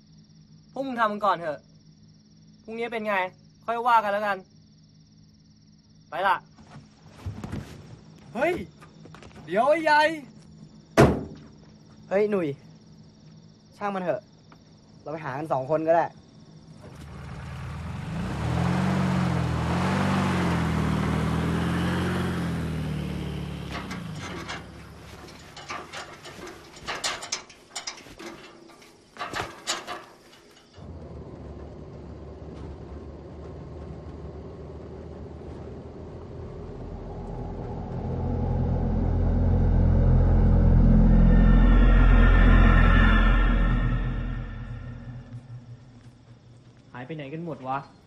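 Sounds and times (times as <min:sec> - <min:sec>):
car engine accelerating: 0:16.7 - 0:25.6, 0:30.8 - 0:46.8
metal gate clanking: 0:23.3 - 0:30.8
low rumbling drone: 0:34.4 - 0:46.8.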